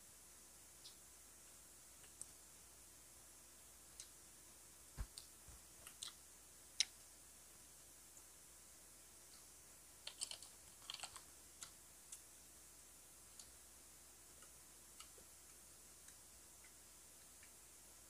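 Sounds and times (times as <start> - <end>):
mouth clicks and smacks eating: 5.0 - 6.2.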